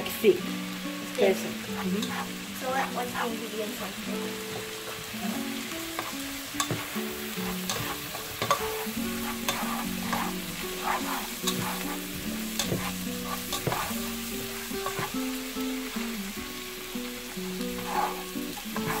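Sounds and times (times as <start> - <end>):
onion sizzling in butter: 0.0 - 19.0
soft melody of held notes: 0.0 - 19.0
spatula scraping a pan: 1.7 - 3.0, 5.8 - 16.2, 17.1 - 19.0.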